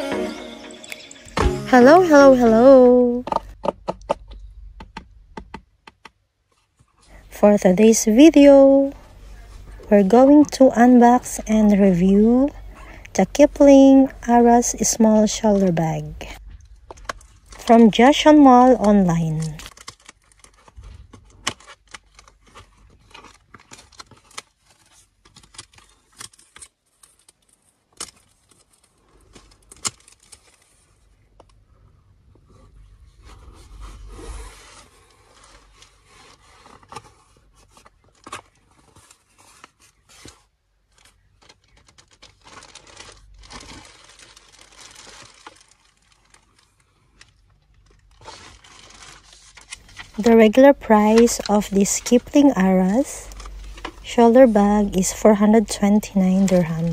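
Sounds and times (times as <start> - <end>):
plastic wrapping crinkling: 13.8 - 56.9
packing tape peeled and torn: 19.3 - 31.5, 34.1 - 50.2.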